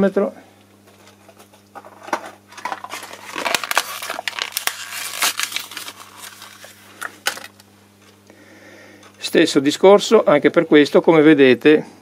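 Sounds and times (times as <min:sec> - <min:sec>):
plastic bag crinkling: 0:01.0 - 0:07.6.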